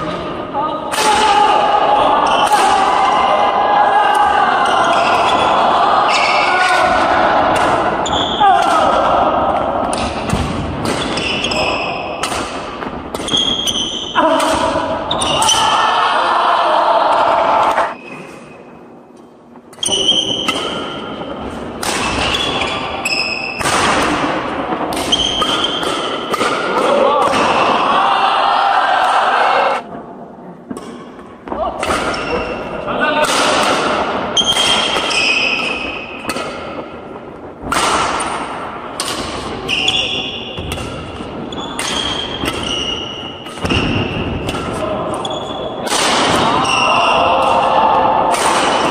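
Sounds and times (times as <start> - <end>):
sneakers squeaking on floor: 2.2 - 2.4, 8.0 - 8.4, 10.8 - 12.2, 13.2 - 14.2, 15.0 - 15.6, 17.9 - 18.8, 19.7 - 21.2, 22.0 - 23.6, 25.1 - 25.8, 32.0 - 32.7, 34.4 - 36.2, 39.5 - 45.8, 46.6 - 47.2
rackets striking shuttlecock: 6.6 - 15.6, 19.7 - 27.5, 33.2 - 48.9.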